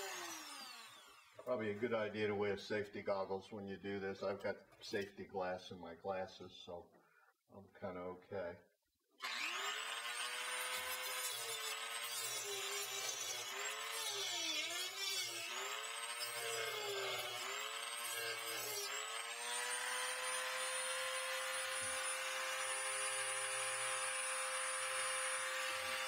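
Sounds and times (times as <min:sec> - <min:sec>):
rotary tool cutting plastic: 0:09.2 - 0:26.0.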